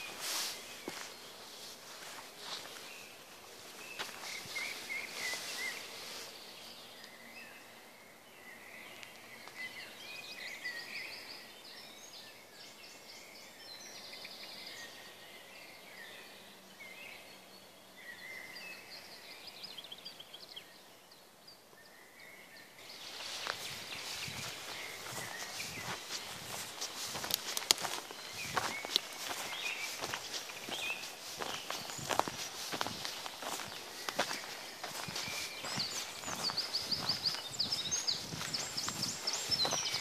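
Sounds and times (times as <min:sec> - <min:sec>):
footsteps: 0:00.0 - 0:06.3, 0:23.0 - 0:40.0
songbirds chirping and trilling: 0:00.0 - 0:40.0.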